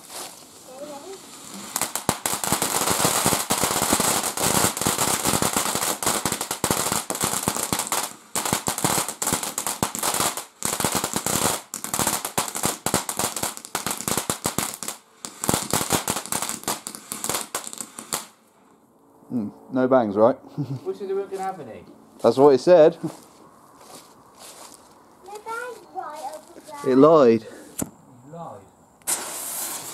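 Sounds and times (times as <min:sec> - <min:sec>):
firework fountain crackling and popping: 0:00.0 - 0:18.4, 0:29.0 - 0:29.9.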